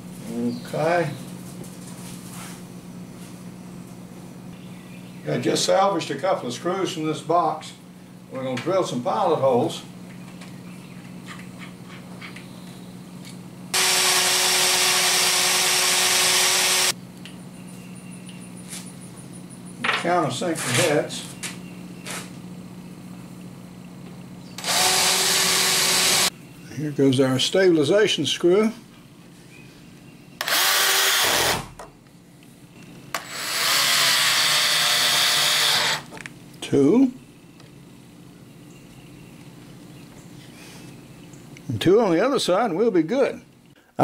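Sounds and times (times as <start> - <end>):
cordless drill boring into wood: 13.8 - 17.0, 24.6 - 26.3, 30.4 - 31.7, 33.2 - 36.1.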